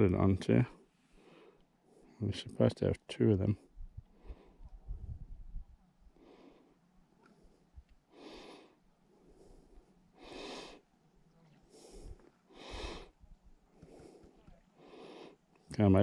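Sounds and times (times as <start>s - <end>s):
man breathing faintly: 0.7s - 2.4s, 3.5s - 15.8s.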